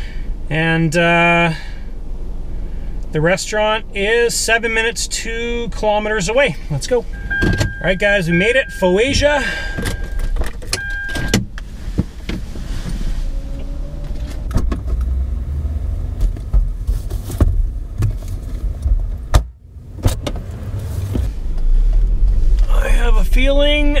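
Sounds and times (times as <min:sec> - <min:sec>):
low steady rumble: 0:00.0 - 0:24.0
car door clunks: 0:07.2 - 0:08.0, 0:09.1 - 0:13.0.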